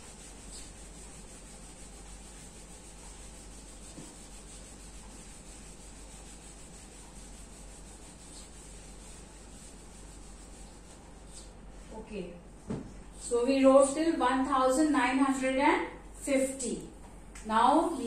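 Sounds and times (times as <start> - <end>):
eraser rubbing on whiteboard: 0.0 - 11.6.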